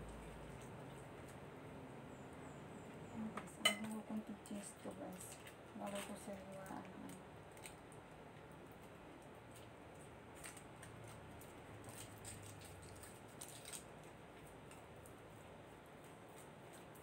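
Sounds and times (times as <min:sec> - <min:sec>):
foil wrapper crinkling: 0:04.8 - 0:17.0.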